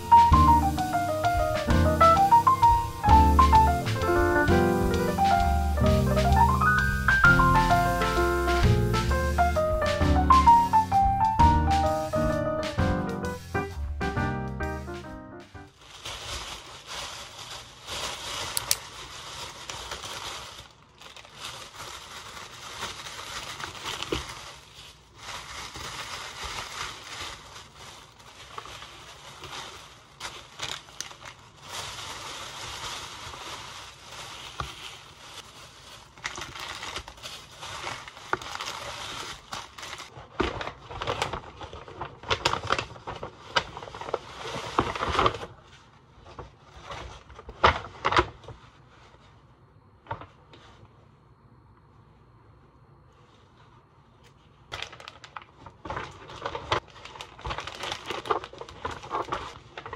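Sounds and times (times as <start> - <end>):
plastic bag crinkling: 0.0 - 49.0, 54.5 - 59.9
paper bag crackles: 0.0 - 49.3, 54.4 - 59.9.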